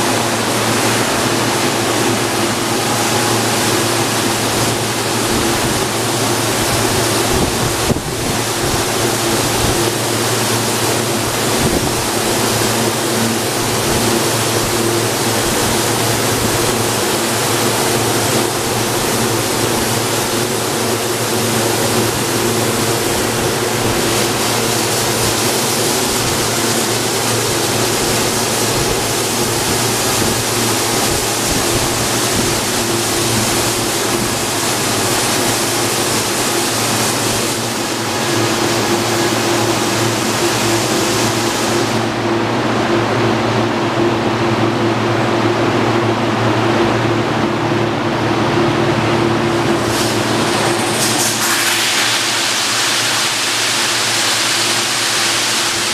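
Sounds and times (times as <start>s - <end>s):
car wash motor hum: 0.0s - 55.9s
water spray hissing: 49.8s - 55.9s.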